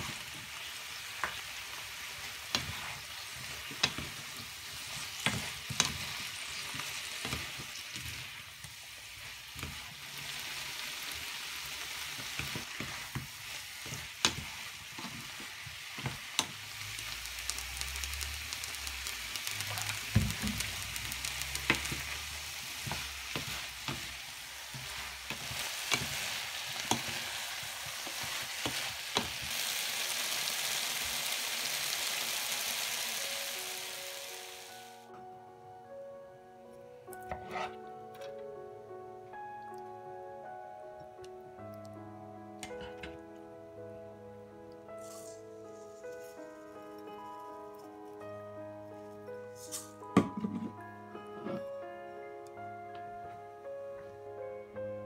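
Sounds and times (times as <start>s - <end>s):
vegetables sizzling in a wok: 0.0s - 35.1s, 44.9s - 47.2s
spatula scraping and tapping pan: 12.4s - 15.4s.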